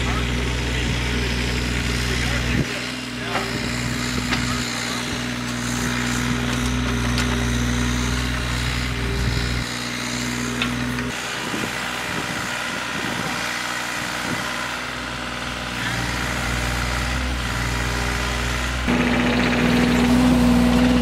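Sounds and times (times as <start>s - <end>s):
excavator diesel engine running: 0.0s - 21.0s.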